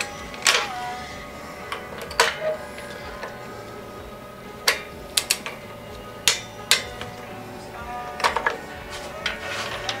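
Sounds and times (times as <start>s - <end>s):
faint background music: 0.0s - 10.0s
wrench clicking: 6.2s - 7.1s.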